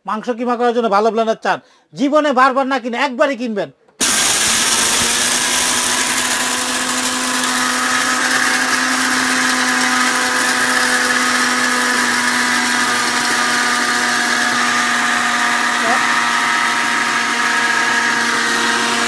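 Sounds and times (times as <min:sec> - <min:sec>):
mixer grinder motor whining: 0:04.0 - 0:19.0.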